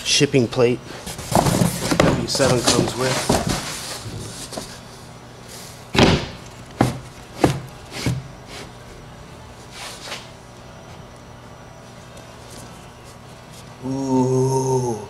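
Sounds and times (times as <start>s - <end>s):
knocks and thumps in cardboard box: 1.1s - 4.7s, 6.0s - 8.3s.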